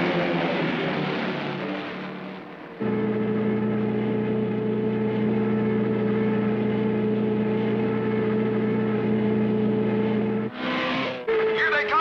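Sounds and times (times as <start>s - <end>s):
cartoon race car engine drone: 0.0s - 12.0s.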